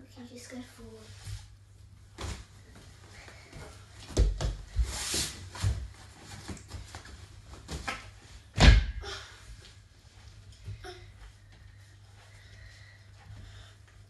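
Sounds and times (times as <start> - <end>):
thumps on gym mat: 7.7 - 9.0.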